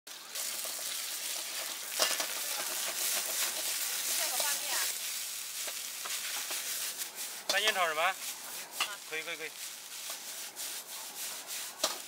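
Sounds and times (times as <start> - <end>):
food sizzling in a wok: 0.1 - 12.0
ladle clanking against wok: 0.7 - 4.6, 11.7 - 12.0
metal ladle stirring and scraping: 0.7 - 5.0, 5.6 - 12.0.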